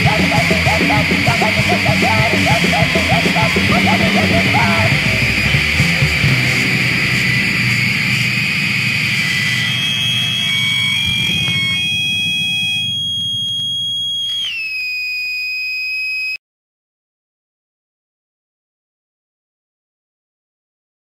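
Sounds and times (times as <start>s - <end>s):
distorted noise-punk band: 0.0s - 14.2s
high feedback tone: 0.0s - 16.4s.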